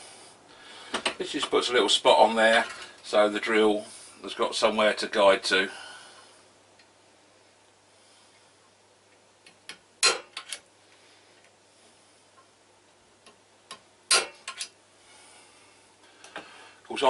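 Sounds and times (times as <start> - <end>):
centre punch snapping on steel: 14.1 - 14.6.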